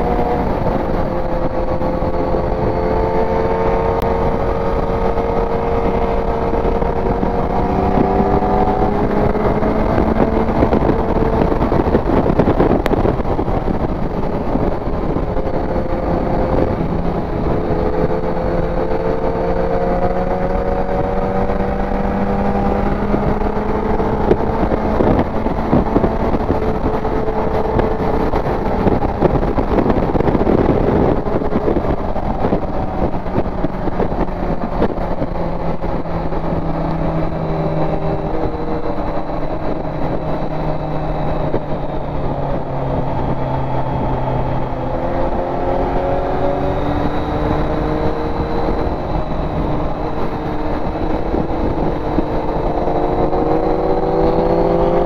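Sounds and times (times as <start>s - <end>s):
motorcycle engine: 0.0s - 55.0s
wind rushing over microphone: 0.0s - 55.0s.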